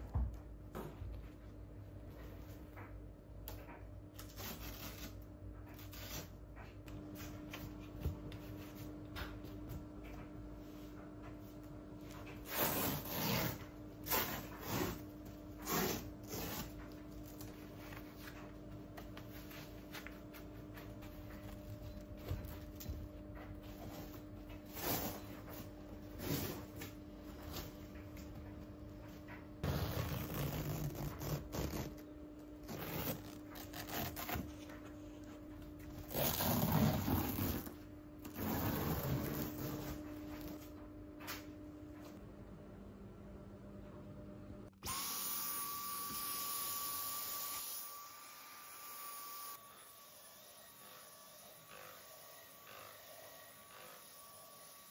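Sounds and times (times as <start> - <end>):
cloth rustling and rubbing: 29.6 - 32.0, 35.9 - 40.7.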